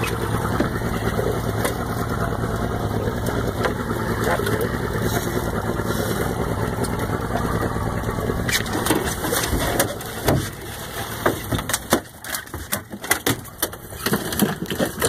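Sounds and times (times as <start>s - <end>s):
outboard motor idling: 0.0s - 15.0s
fish thudding on boat deck: 3.4s - 15.0s.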